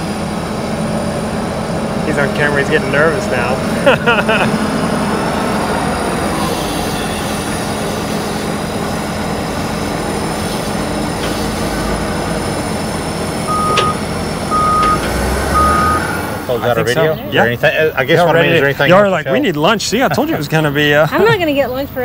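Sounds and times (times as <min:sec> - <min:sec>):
diesel engine running: 0:00.0 - 0:22.0
reversing alarm beeps: 0:13.4 - 0:16.8.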